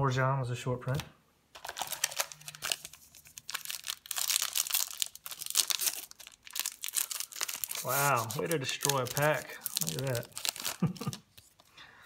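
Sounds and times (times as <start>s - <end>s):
card pack wrapper tearing and crinkling: 0.9s - 11.7s.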